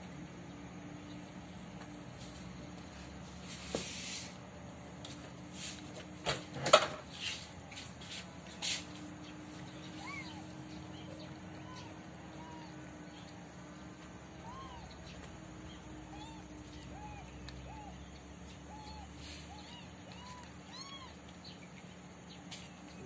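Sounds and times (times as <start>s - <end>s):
low steady hum: 0.0s - 23.0s
sharp knocks and rustles: 5.0s - 9.1s
faint short chirping calls: 9.2s - 13.5s, 14.3s - 23.0s.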